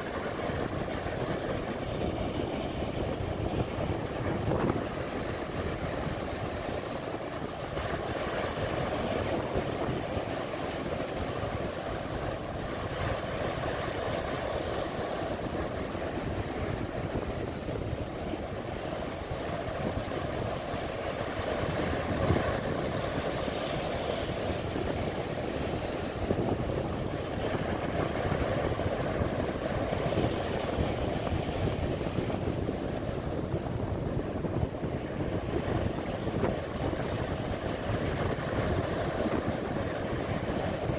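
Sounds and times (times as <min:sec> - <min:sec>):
surf breaking on beach: 0:00.0 - 0:40.9
wind buffeting microphone: 0:00.0 - 0:40.9.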